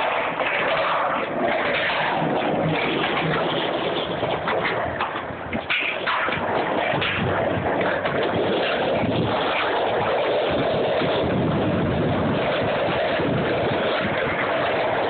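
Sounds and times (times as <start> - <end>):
skateboard wheels rolling on asphalt: 0.0 - 15.0
wind on microphone: 0.0 - 15.0.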